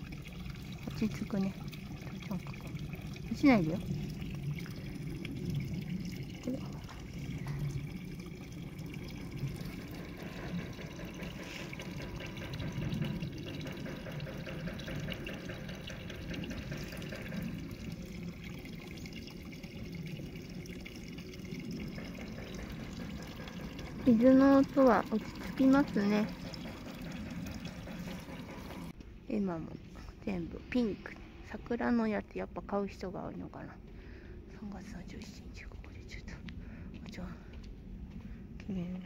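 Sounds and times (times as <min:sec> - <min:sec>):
water trickling into pond: 0:00.0 - 0:29.0.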